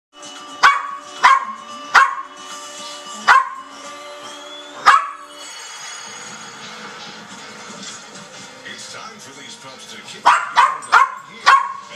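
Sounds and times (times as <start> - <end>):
television music: 0.1 - 11.9
puppy barking: 0.6 - 2.3, 3.3 - 3.6, 4.8 - 5.2, 10.2 - 11.9.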